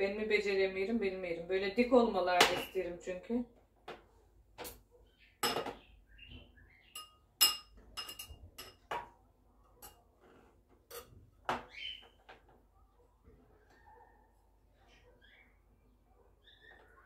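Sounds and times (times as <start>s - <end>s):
metal spoon tapping glass cup: 7.0s - 8.8s.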